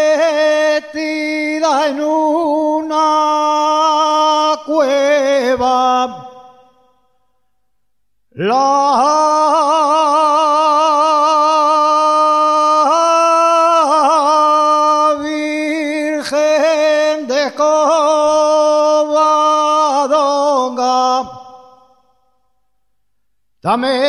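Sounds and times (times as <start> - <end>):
person singing unaccompanied: 0.0 - 6.3.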